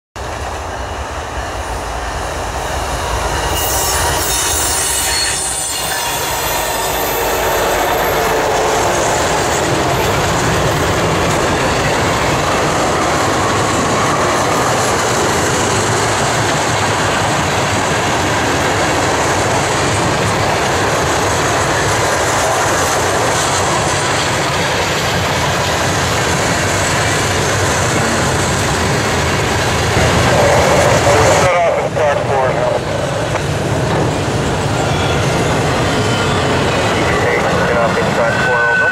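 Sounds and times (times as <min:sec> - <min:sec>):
train wheels rushing on rails: 0:00.2 - 0:38.9
high-pitched wheel squeal: 0:03.4 - 0:08.2.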